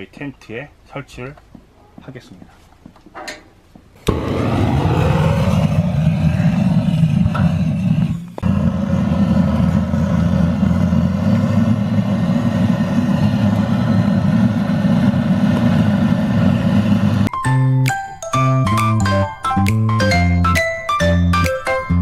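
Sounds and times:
gas torch roaring: 4.0s - 17.3s.

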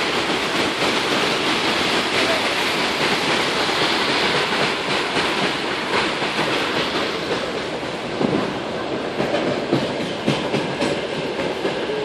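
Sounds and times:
floodwater rushing: 0.0s - 9.2s.

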